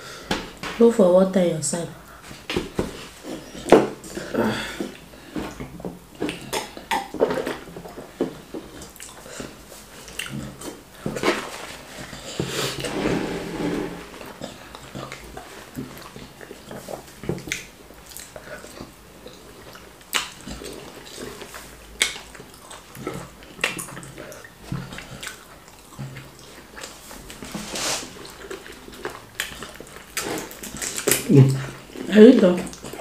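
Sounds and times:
chewing and swallowing: 14.3 - 27.5, 28.2 - 33.0.

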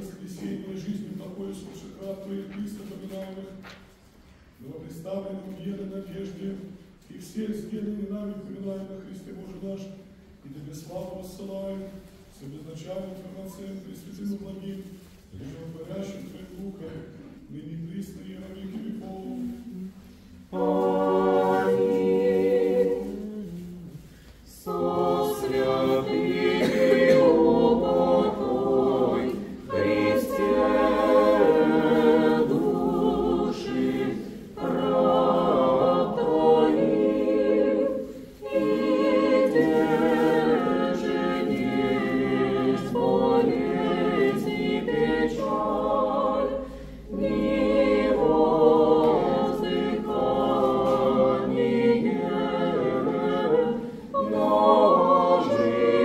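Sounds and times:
priest chanting: 0.0 - 3.6, 4.6 - 56.0
choir singing unaccompanied chant: 15.4 - 56.0.

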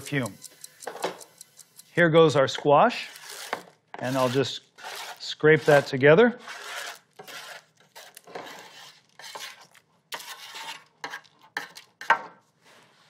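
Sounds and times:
spatula scraping metal pan: 2.9 - 12.2.

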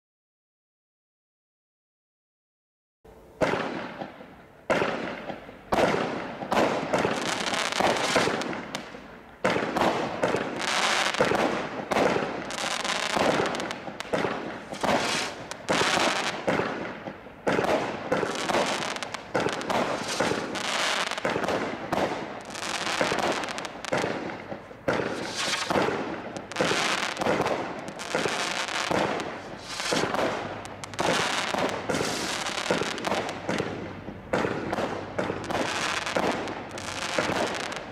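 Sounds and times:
firework cake launches and bursts: 13.0 - 16.9, 17.5 - 24.2, 24.9 - 33.7.

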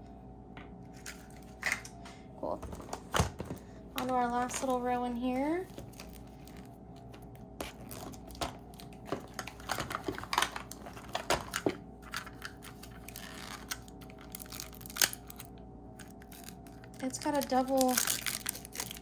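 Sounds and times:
plastic wrapping crinkling: 4.0 - 19.0.

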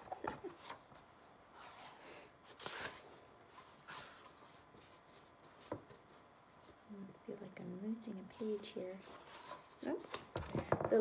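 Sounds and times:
book pages flipping: 0.0 - 6.9.

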